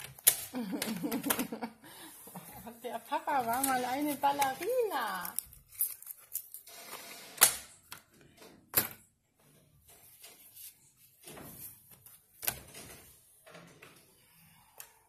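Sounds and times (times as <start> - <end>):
paper rustling: 0.0 - 6.7.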